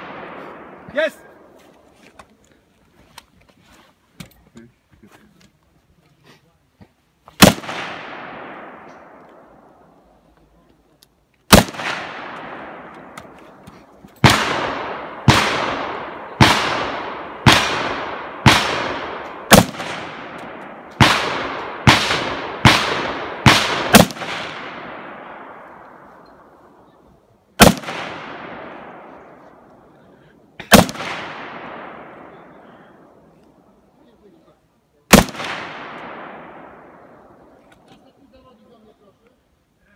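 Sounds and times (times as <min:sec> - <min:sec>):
echoing gunshots: 0:00.0 - 0:01.6, 0:07.4 - 0:10.0, 0:11.5 - 0:26.8, 0:27.6 - 0:33.3, 0:35.1 - 0:37.6.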